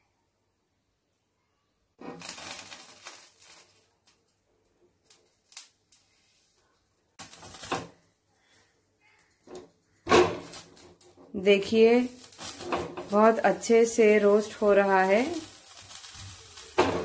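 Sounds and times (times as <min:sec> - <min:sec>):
eggplant scraping on wire grill: 0:09.5 - 0:17.0.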